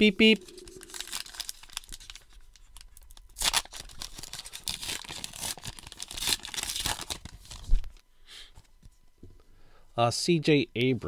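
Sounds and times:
wrapper tearing and crinkling: 0:00.4 - 0:07.8.

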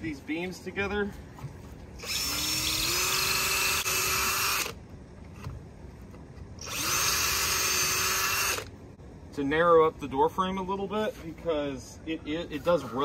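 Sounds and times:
cordless drill drilling into wood: 0:02.0 - 0:04.8, 0:06.6 - 0:08.7.

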